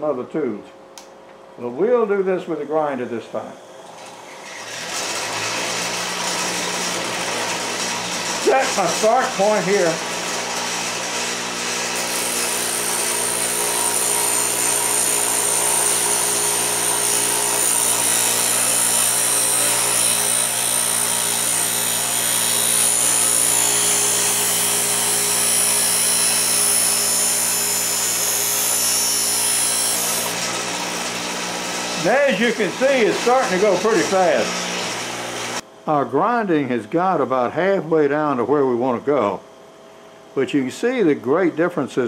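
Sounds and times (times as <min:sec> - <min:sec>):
bench grinder motor hum: 0:03.4 - 0:35.6
blade grinding on wheel: 0:04.0 - 0:35.6.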